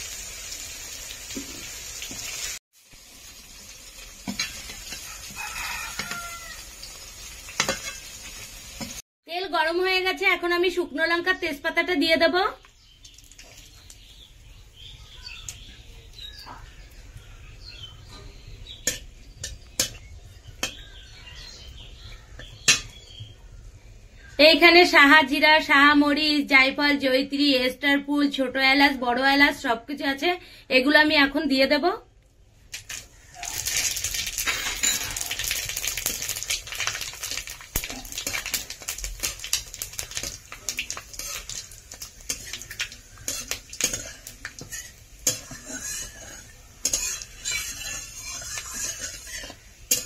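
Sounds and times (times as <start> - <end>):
spices sizzling in hot oil: 0.0 - 9.0, 12.4 - 23.4, 32.7 - 50.0
birds chirping: 10.7 - 24.6.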